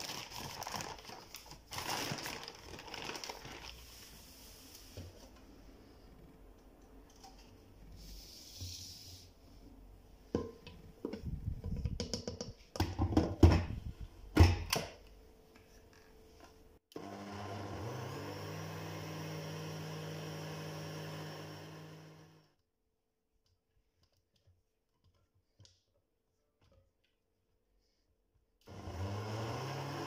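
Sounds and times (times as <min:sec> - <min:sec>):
blender motor running: 0:16.9 - 0:22.5, 0:28.7 - 0:30.0.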